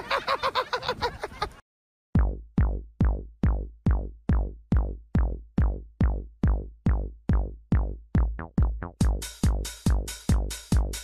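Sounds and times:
deep bass drums: 2.1s - 11.0s
electronic music with drum machine: 2.2s - 11.0s.

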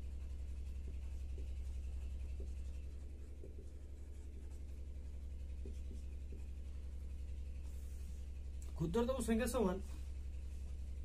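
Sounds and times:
marker writing on whiteboard: 0.0s - 8.6s
steady low hum: 0.0s - 11.0s.

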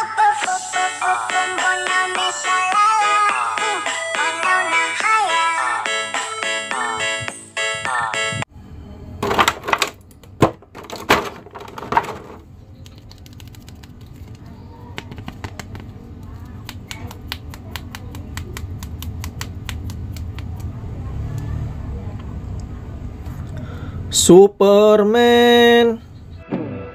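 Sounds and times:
plastic crinkling: 10.7s - 14.5s.

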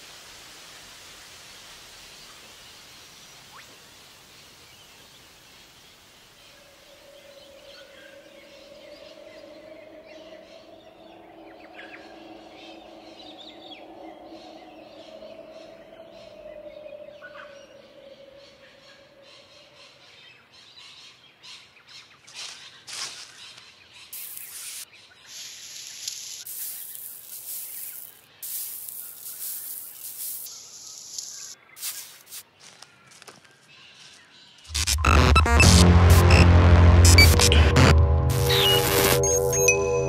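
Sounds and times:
sustained droning chord: 7.5s - 18.1s, 34.7s - 40.0s
bird-like chirps and calls: 23.3s - 32.2s.

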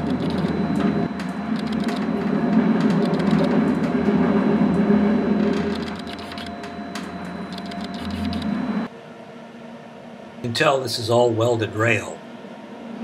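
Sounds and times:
train car rumbling on rails: 0.0s - 7.6s.

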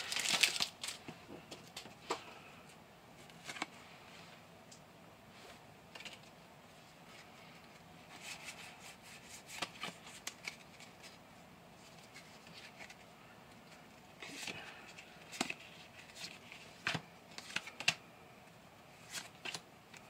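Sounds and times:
trading cards rustling and clicking: 0.0s - 2.0s, 7.1s - 11.2s, 13.6s - 18.0s.

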